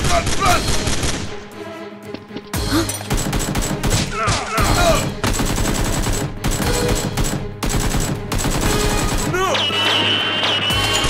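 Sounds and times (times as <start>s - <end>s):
rapid machine-gun fire: 3.1s - 4.0s, 5.2s - 9.3s.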